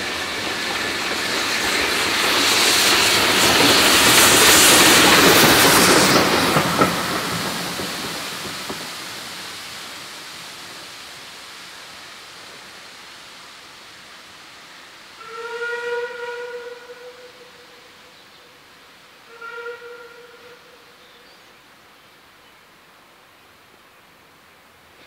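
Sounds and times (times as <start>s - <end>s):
steam train passing: 0.0s - 25.0s
steam whistle: 15.2s - 18.0s, 19.2s - 20.9s.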